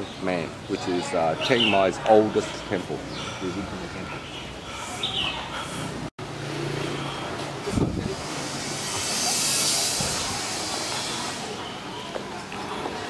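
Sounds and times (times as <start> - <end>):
vehicle engine humming: 2.4 - 13.0
vehicle passing with hiss: 4.7 - 13.0.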